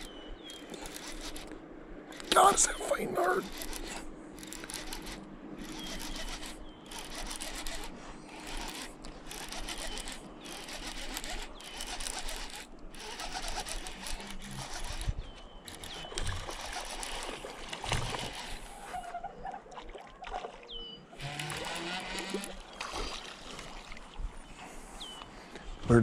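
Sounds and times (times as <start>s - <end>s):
fishing reel gears rattling: 0.0s - 1.5s, 3.4s - 17.2s
fish splashing: 15.7s - 18.9s, 21.2s - 24.2s.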